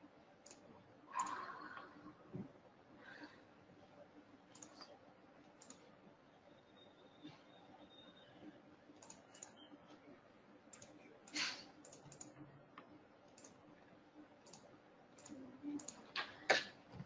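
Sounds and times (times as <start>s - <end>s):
computer mouse clicks: 0.4s - 1.9s, 4.5s - 5.9s, 8.9s - 10.1s, 10.7s - 13.8s, 14.4s - 16.3s.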